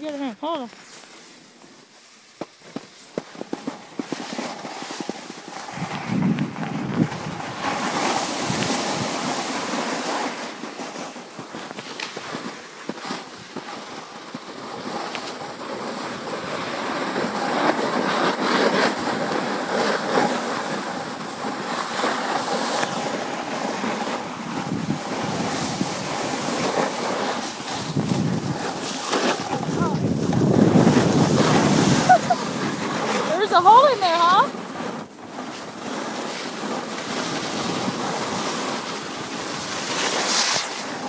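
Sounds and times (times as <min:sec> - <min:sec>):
sliding over packed snow: 0:00.0 - 0:41.0
wind rushing over microphone: 0:05.0 - 0:10.4, 0:20.6 - 0:41.0.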